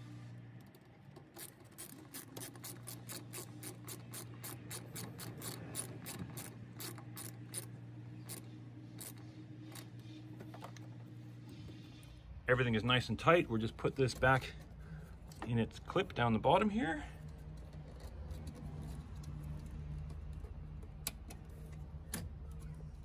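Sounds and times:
socket ratchet clicking: 0.7s - 9.9s.

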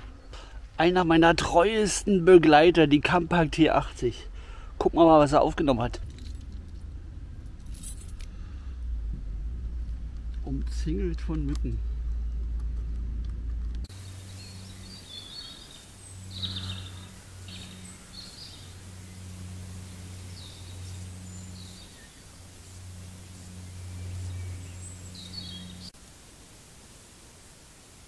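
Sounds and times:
low hum: 0.0s - 26.2s
faint steady hiss: 0.0s - 28.0s
small birds chirping: 13.8s - 26.0s.

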